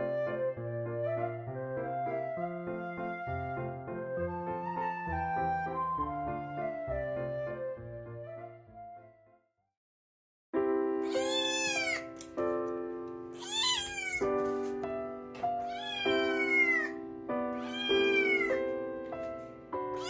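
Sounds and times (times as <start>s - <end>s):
background music with soft chords: 10.6s - 20.0s
cat meowing: 11.0s - 12.2s, 13.4s - 14.5s, 15.6s - 17.0s, 17.6s - 18.6s.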